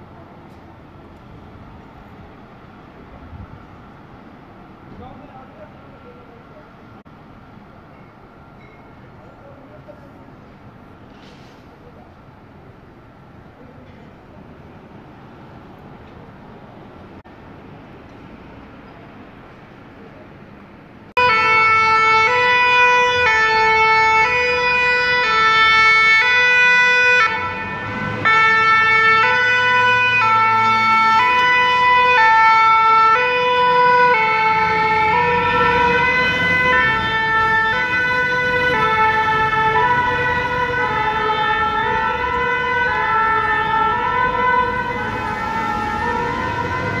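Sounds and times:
two-tone emergency siren: 21.2 - 47.0.

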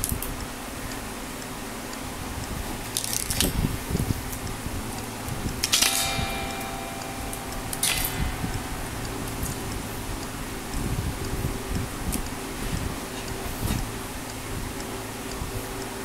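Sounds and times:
electric fan humming: 0.0 - 16.0
guitar string ringing faintly: 4.5 - 13.4.

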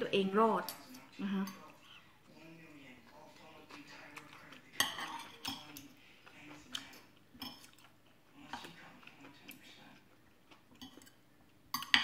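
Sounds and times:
quiet chewing: 0.9 - 11.7
cutlery tapping glass plate: 11.7 - 12.0.

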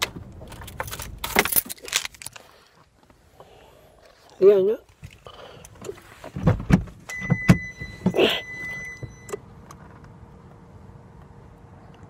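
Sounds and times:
car door and seat thumps: 6.2 - 9.2
high car warning tone: 7.0 - 9.4.

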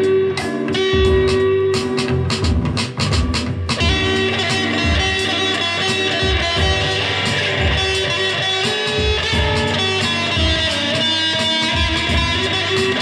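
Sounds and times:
backing track with low beat: 0.0 - 13.0
electric guitar playing: 0.0 - 13.0.

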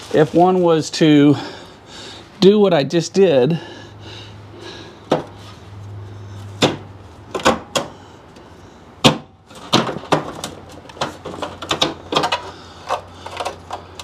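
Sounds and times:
knocks and clicks of grille handling: 6.6 - 8.4, 9.0 - 14.0.

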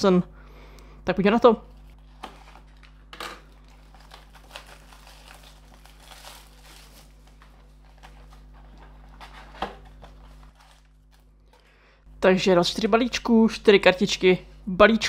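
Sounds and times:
plastic wrap and cardboard crinkling: 1.7 - 11.7.

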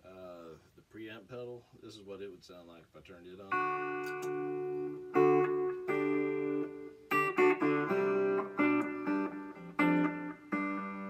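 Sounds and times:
electric guitar strummed chords: 3.5 - 11.0.

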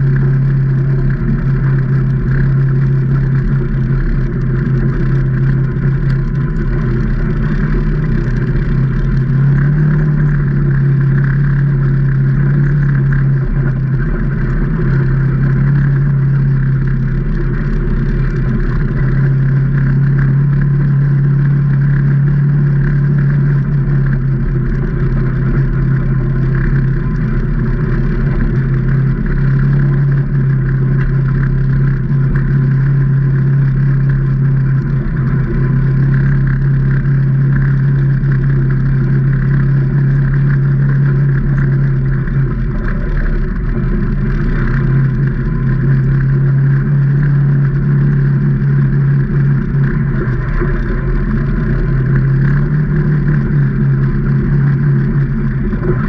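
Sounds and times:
engine running: 0.0 - 56.0.

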